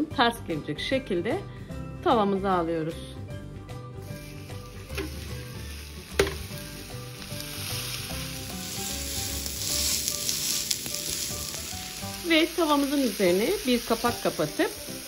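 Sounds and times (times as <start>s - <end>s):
meat sizzling in a pan: 4.0s - 15.0s.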